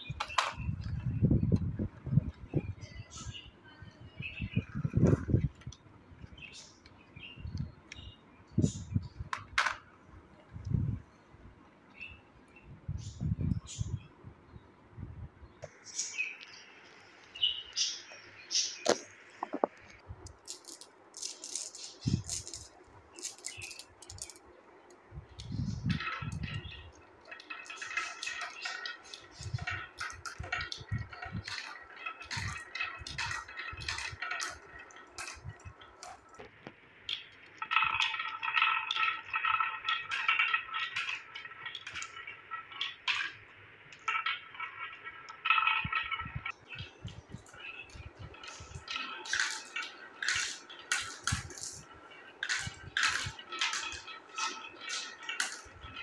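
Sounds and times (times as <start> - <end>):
marbles clicking and rattling: 20.3 - 24.5, 25.3 - 36.5, 37.1 - 56.0.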